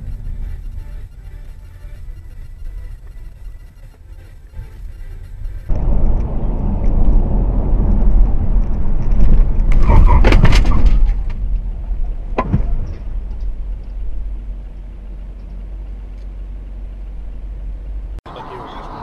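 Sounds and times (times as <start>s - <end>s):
vehicle rumbling: 0.0s - 19.0s
vehicle crash crunching impacts: 5.6s - 16.1s.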